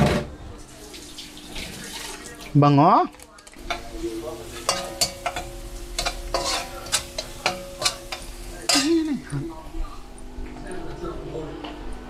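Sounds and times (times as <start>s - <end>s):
utensil scraping and knocking pan: 3.6s - 9.0s
garlic sizzling: 3.6s - 10.2s.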